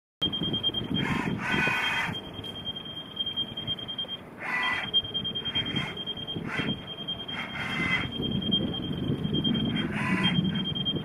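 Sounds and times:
high-pitched warning buzzer: 0.2 - 11.0
bursts of machine noise: 3.3 - 11.0.

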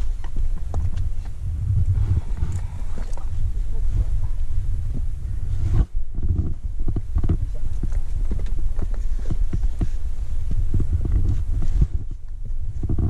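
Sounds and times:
steady low rumble: 0.0 - 13.0
climber knocking and scuffing rock: 5.7 - 13.0.

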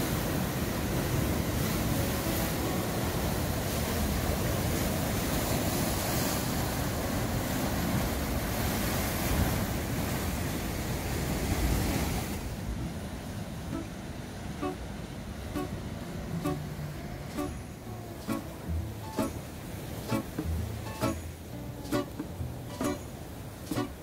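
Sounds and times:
surf breaking against rocks: 0.0 - 24.0
soft musical notes: 1.8 - 4.1, 12.7 - 24.0.

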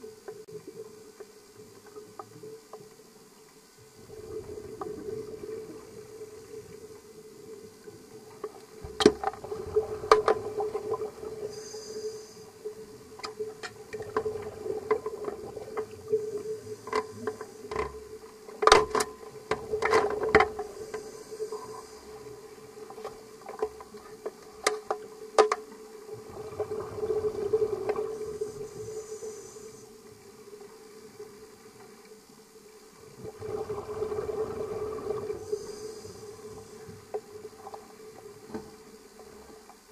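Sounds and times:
steady underwater hum: 0.0 - 39.9
diver regulator breathing: 9.7 - 12.9, 20.1 - 23.0, 26.4 - 30.0, 33.5 - 37.2
exhaust bubbles: 26.1 - 29.0, 33.1 - 35.8.

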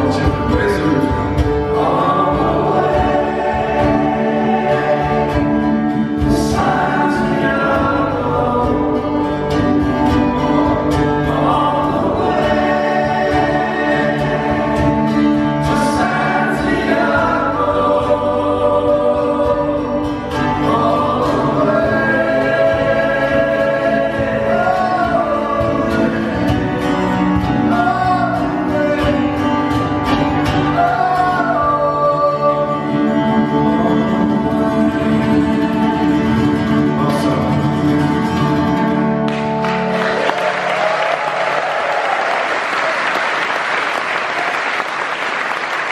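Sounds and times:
voices singing together: 0.0 - 38.8
strummed acoustic guitars: 0.0 - 41.8
applause: 39.3 - 45.9.

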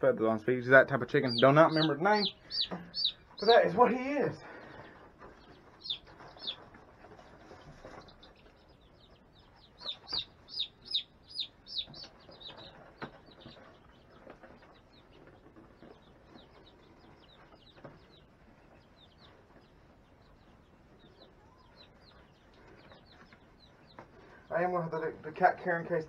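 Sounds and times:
chick peeping: 0.1 - 26.0.

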